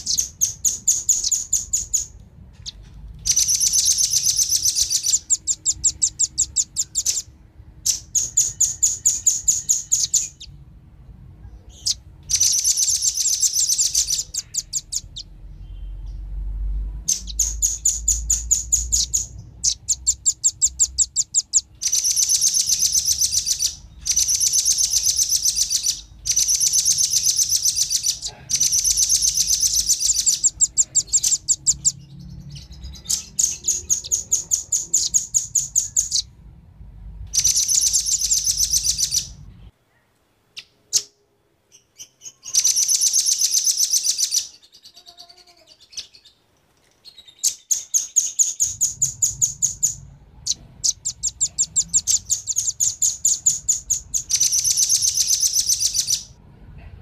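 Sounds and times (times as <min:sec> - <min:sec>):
birds trilling chirps: 0:00.0 - 0:36.6, 0:37.2 - 0:56.4.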